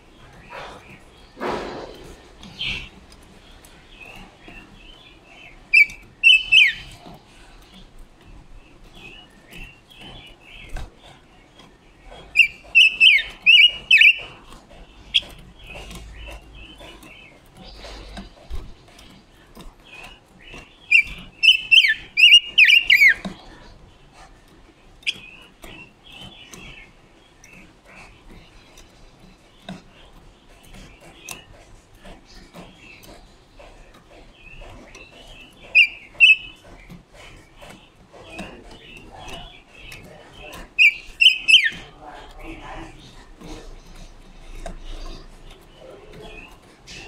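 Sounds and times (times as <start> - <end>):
soft bird chirps: 0.0 - 24.1, 32.2 - 47.0
bird whistling song: 5.7 - 7.0, 12.3 - 14.3, 20.8 - 23.2, 35.6 - 36.6, 40.8 - 41.9.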